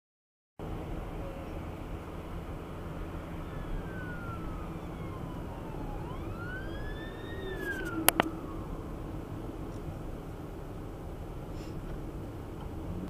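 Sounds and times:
road and engine noise inside car: 0.6 - 13.0
emergency siren wailing: 2.4 - 10.0.

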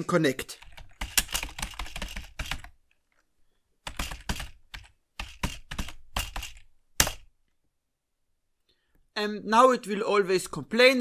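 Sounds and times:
computer keyboard typing: 0.6 - 2.9, 3.8 - 7.3.

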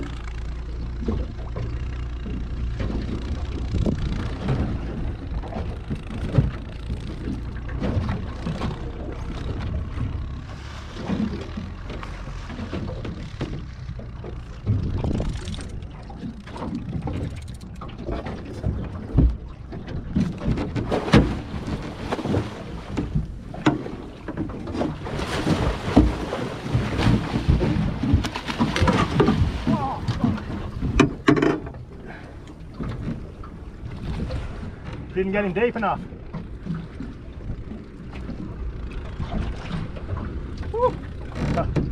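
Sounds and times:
water splashing against boat hull: 0.0 - 41.9
wind buffeting microphone: 3.0 - 9.6, 12.6 - 31.2.

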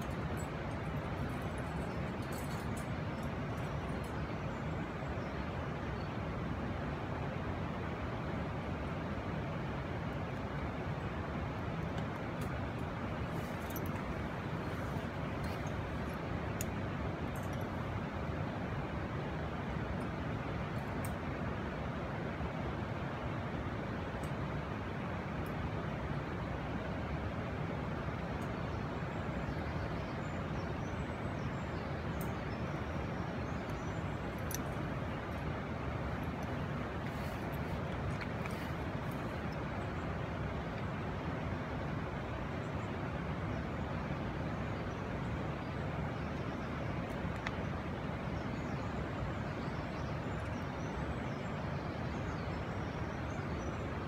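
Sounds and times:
low rushing outdoor noise: 0.0 - 54.0
light clicks: 47.1 - 47.7.

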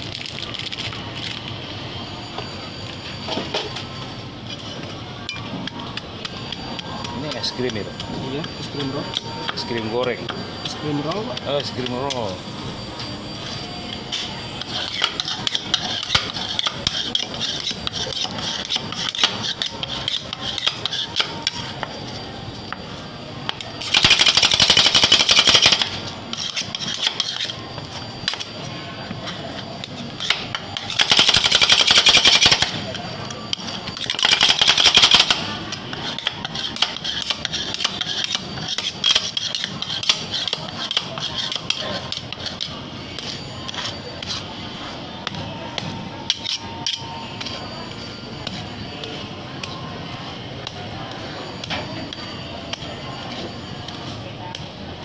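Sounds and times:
rapid chopping strokes on metal: 14.6 - 21.9, 23.8 - 27.6, 29.8 - 32.8, 33.6 - 47.0
metal spatulas tapping and scraping: 33.5 - 44.4.

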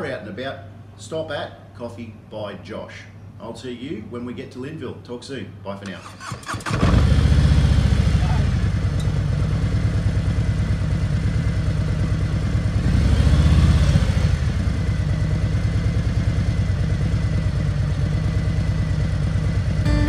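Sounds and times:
motorcycle engine idling and revving: 6.4 - 20.0.

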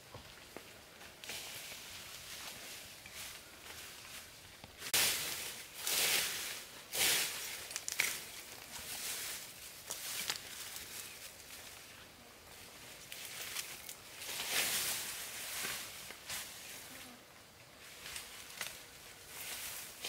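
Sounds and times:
leafy branches rustling: 0.0 - 20.0
twigs crackling and snapping: 7.4 - 8.8, 9.8 - 11.2, 13.1 - 14.5.

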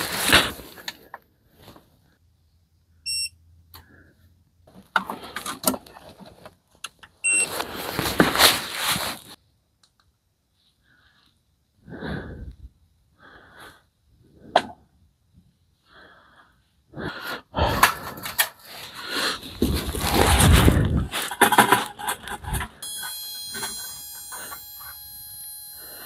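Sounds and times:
rustling handling noise: 0.0 - 2.0, 4.7 - 9.4, 17.9 - 25.0
short electronic beeps: 3.1 - 3.4, 7.2 - 7.5, 22.8 - 26.0
person breathing: 10.7 - 14.6, 15.8 - 21.4, 25.7 - 26.0.

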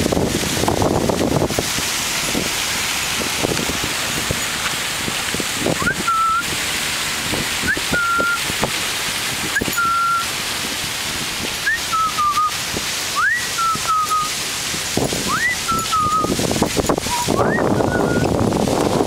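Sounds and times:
fountain splashing: 0.0 - 19.0
person whistling: 5.8 - 6.4, 7.7 - 8.4, 9.6 - 10.3, 11.7 - 12.5, 13.2 - 14.4, 15.3 - 16.4, 17.1 - 18.3.

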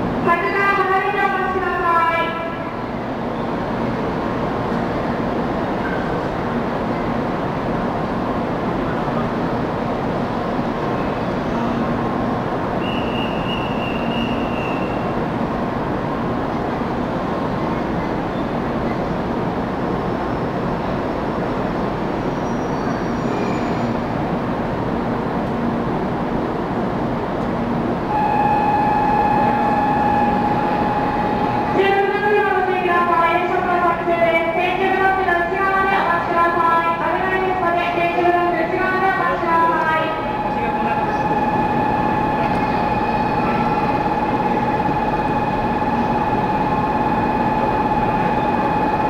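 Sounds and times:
busy train station platform: 0.0 - 49.0
steady high tone: 28.1 - 34.0, 37.0 - 49.0.

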